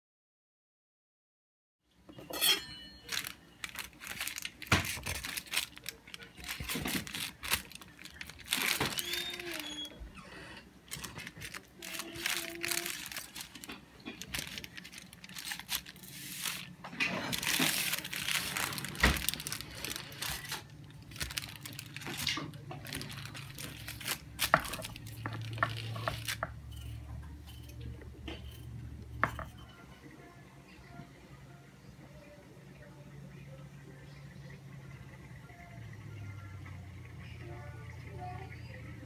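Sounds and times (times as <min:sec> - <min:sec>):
wax paper crinkling: 0:03.0 - 0:09.9, 0:10.9 - 0:26.6.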